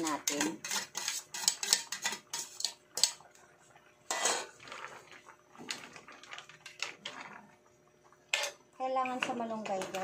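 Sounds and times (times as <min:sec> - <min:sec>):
stirring in metal wok: 0:00.0 - 0:03.3, 0:04.0 - 0:07.4.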